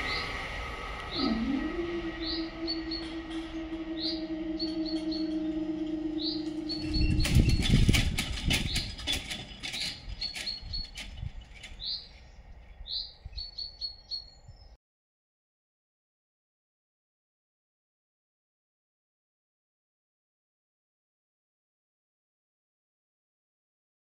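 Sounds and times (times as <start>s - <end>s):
bird chirping: 0.0s - 0.4s, 1.0s - 14.8s
barrier mechanism humming: 0.0s - 13.7s
barrier booms clattering: 1.1s - 12.0s.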